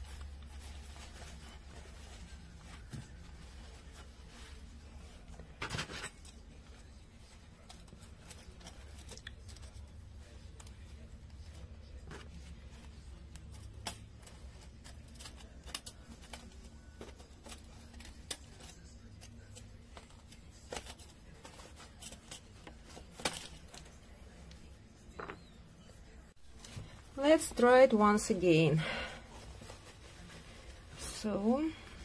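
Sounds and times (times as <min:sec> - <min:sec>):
fabric rustling: 0:00.0 - 0:13.6, 0:26.4 - 0:32.0
low steady hum: 0:00.0 - 0:32.0.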